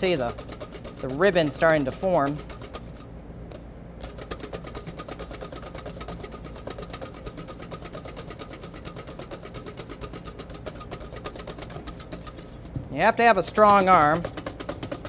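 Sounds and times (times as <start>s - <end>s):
wire whisk beating in metal bowl: 0.0s - 3.1s, 4.0s - 15.0s
steady low hum: 0.0s - 15.0s.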